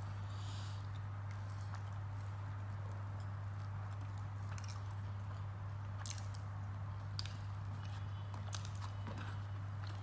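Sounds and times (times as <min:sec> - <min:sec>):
wet chewing clicks: 0:01.2 - 0:09.0.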